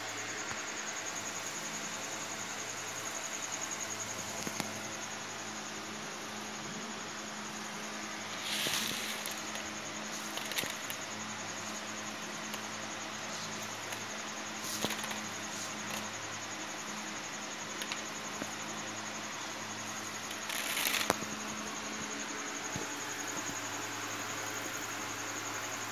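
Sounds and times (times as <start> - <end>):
steady hiss and low hum: 0.0 - 25.9
seeds rattling on plastic sack: 8.2 - 11.1, 13.3 - 16.2, 20.2 - 21.4.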